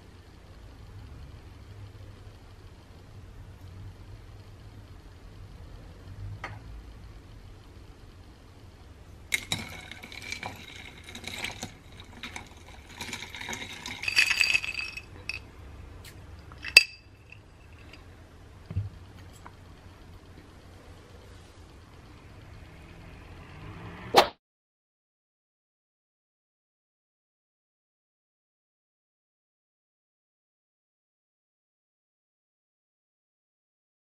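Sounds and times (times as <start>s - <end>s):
ice clinking in glass: 9.3s - 15.5s, 16.6s - 18.0s.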